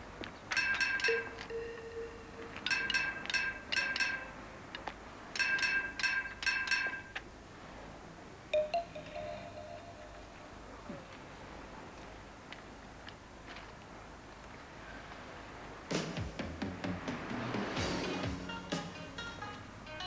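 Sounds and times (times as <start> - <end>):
drumsticks striking iron railing: 0.6 - 4.3, 5.4 - 7.1.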